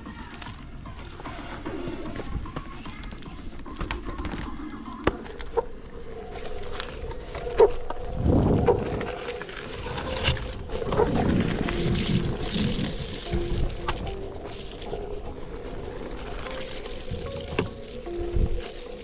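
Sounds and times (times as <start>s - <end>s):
electric board rolling over gravel: 0.2s - 19.0s.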